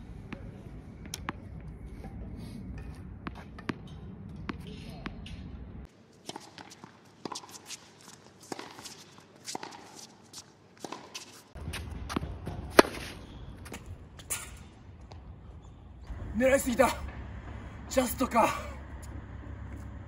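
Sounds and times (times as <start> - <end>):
outdoor court noise: 0.0 - 20.0
tennis racket hitting ball: 6.2 - 10.2, 10.8 - 14.6.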